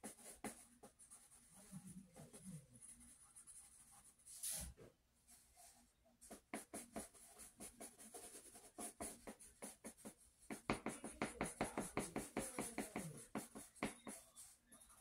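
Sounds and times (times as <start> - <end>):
pencil scratching on paper: 0.0 - 4.7, 5.6 - 15.0.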